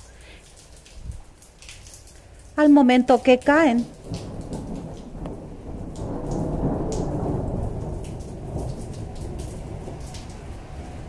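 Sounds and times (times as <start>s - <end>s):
soft steady rain: 0.0s - 11.0s
rolling thunder: 3.8s - 11.0s.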